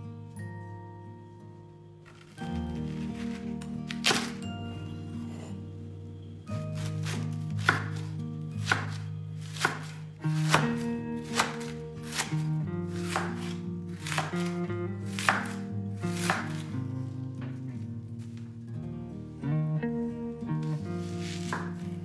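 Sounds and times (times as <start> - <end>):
background music: 0.0 - 22.0
knife shredding cabbage on wooden board: 6.8 - 16.7, 21.1 - 21.9.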